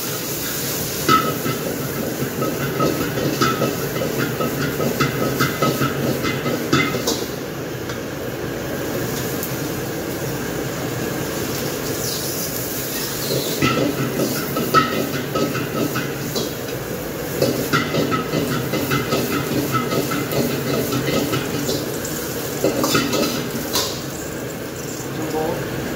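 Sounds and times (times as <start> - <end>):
food sizzling in wok: 0.0 - 25.9
wok burner rushing: 0.0 - 25.9
metal utensil scraping wok: 11.8 - 16.6, 17.3 - 25.2.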